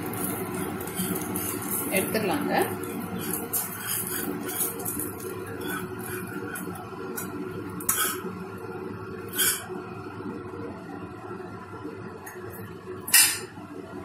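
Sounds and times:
steady low hum: 0.0s - 14.0s
metal spatula scraping a pan: 0.2s - 2.2s, 2.9s - 6.8s, 7.9s - 8.3s, 9.3s - 9.7s.

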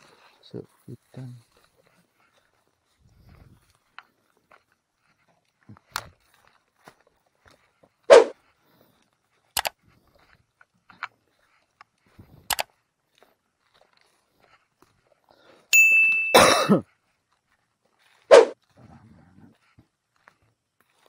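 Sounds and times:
bell-like ding: 15.7s - 16.4s.

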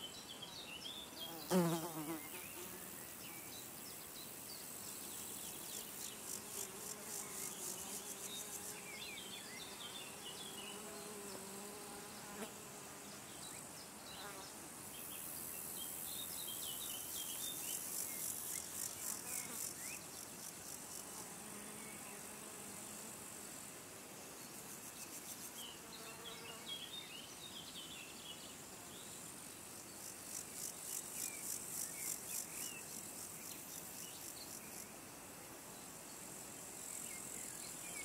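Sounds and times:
flying insect buzzing: 1.2s - 3.6s, 4.8s - 15.8s, 17.1s - 26.9s.

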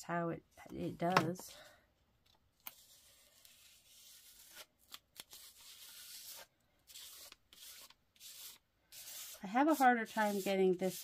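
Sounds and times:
palette knife scraping paint: 2.7s - 11.0s.

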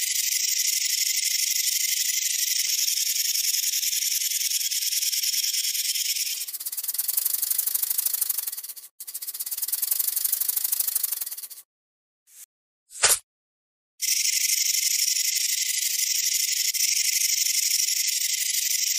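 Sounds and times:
rattlesnake tail rattling: 0.3s - 11.6s.

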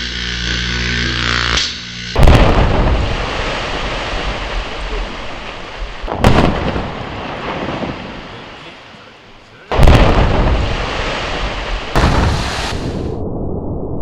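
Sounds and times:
rock blast rumble: 0.0s - 14.0s
sharp blast: 0.9s - 13.7s.

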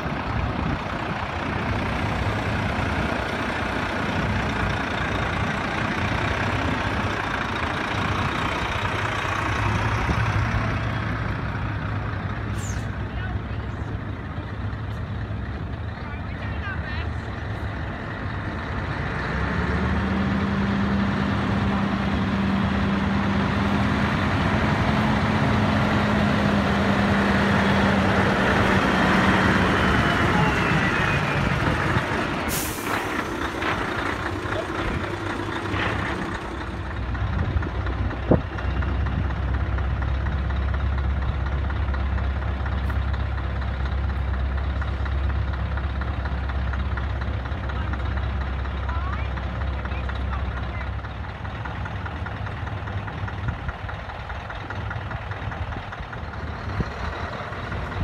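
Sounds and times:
diesel trucks driving past: 0.0s - 58.0s
truck engine low rumble: 0.0s - 58.0s
air brake hiss: 32.5s - 33.0s.

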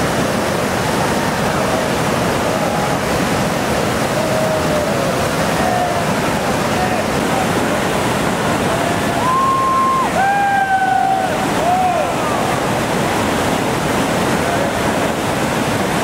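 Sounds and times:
whitewater rapid rushing: 0.0s - 16.0s
people shouting: 8.9s - 12.6s.

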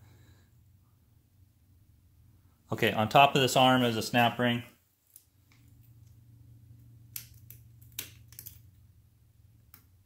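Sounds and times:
faint low hum: 0.0s - 10.0s
small sharp metal clicks: 7.1s - 8.8s.

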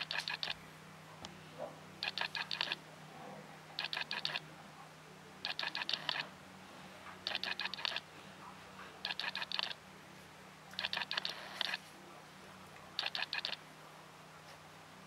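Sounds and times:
rapid mechanical clicking: 0.0s - 0.6s, 2.0s - 2.8s, 3.8s - 4.4s, 5.4s - 6.3s, 7.3s - 8.0s, 9.0s - 9.7s, 10.7s - 11.8s, 13.0s - 13.6s.

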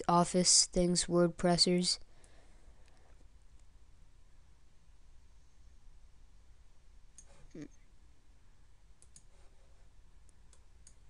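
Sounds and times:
computer mouse clicks: 7.1s - 7.4s, 9.0s - 9.6s, 10.3s - 11.0s.

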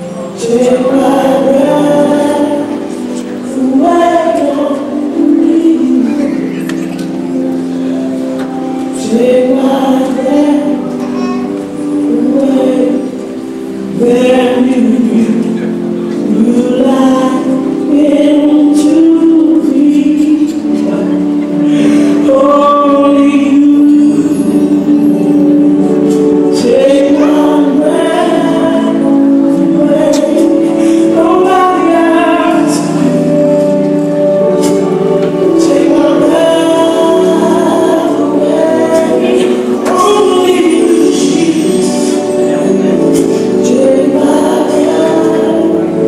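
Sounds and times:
choir singing gospel song: 0.0s - 6.8s, 21.7s - 46.0s.

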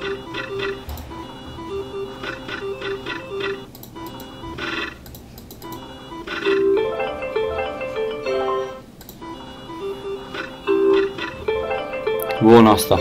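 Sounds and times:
electronic ticking of spinning reels: 0.0s - 6.6s.

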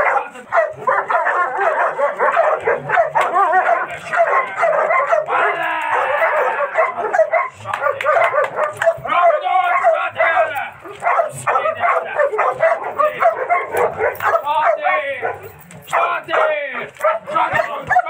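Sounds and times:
dog barking aggressively: 0.0s - 18.0s
long held cry: 5.1s - 7.2s.

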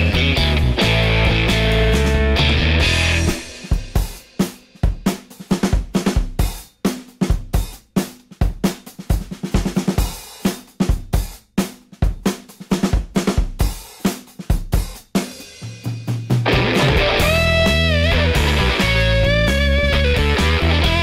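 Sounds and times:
drum kit playing a beat: 0.0s - 21.0s.

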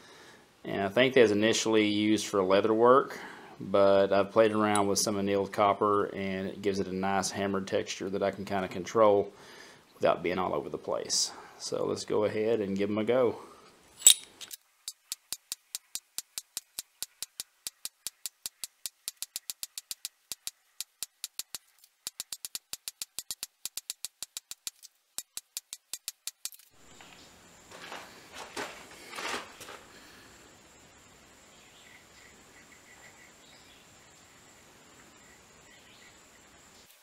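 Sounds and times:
low background hiss: 0.0s - 37.0s
faint handling rustles: 26.9s - 30.1s.

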